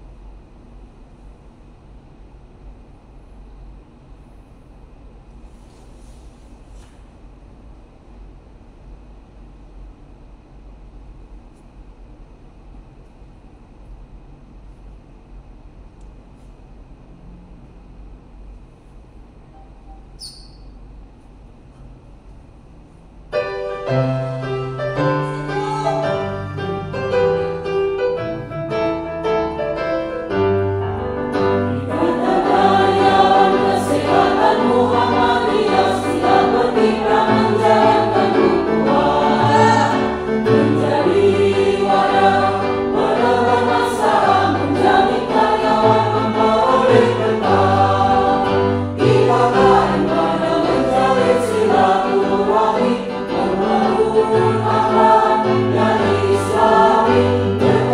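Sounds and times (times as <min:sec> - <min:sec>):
keyboard playing: 0:23.4 - 0:57.9
choir singing: 0:31.3 - 0:57.9.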